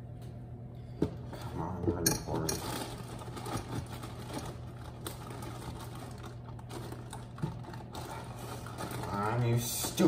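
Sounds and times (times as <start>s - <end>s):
low steady hum: 0.0s - 10.0s
packaging crinkling: 2.5s - 10.0s.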